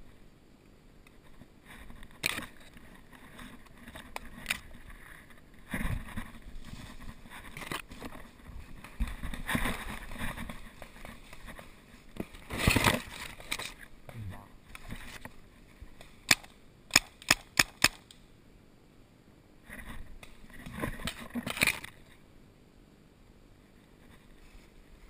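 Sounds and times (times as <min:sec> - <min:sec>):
brush rustling against camera: 0:01.1 - 0:13.9
sharp clicks: 0:16.3 - 0:18.2.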